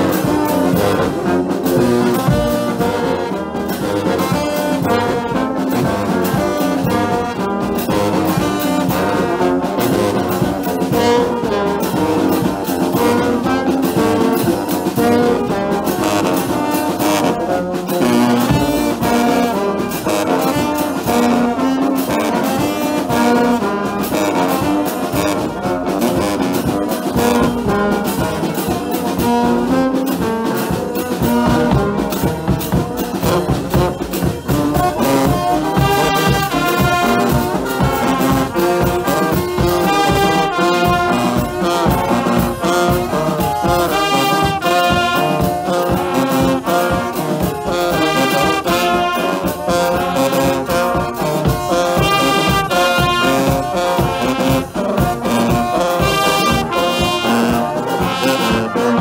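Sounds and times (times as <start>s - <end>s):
brass melody: 0.0s - 59.0s
dense percussive beat: 0.0s - 59.0s.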